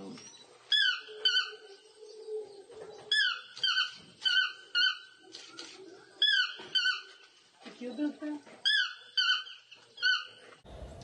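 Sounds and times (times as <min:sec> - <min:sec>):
toucan calling: 0:00.7 - 0:07.3, 0:08.6 - 0:10.6.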